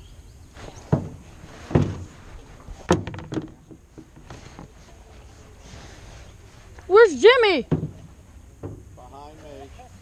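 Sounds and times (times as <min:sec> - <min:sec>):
paddle knocking against canoe: 0:00.6 - 0:05.6, 0:07.6 - 0:09.5.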